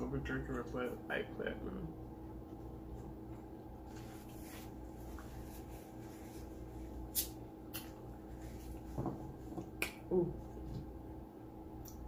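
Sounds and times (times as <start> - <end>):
paper towel rubbing: 3.9 - 7.1.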